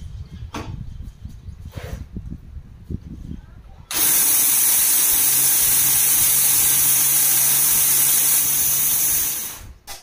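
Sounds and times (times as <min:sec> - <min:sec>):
mixer grinder whirring: 0:03.9 - 0:09.8.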